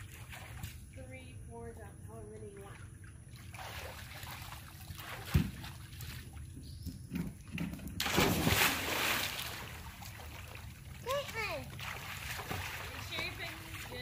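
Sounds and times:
big splash into pool: 8.0 - 10.6.

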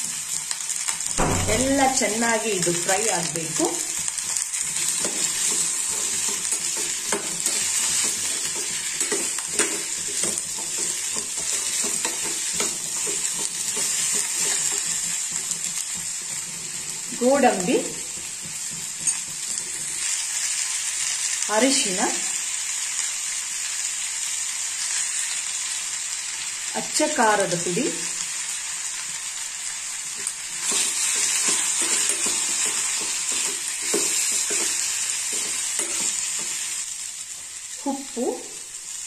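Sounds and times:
vegetables sizzling in hot oil: 0.0 - 39.0
steel spoon scraping pot: 30.6 - 36.4.

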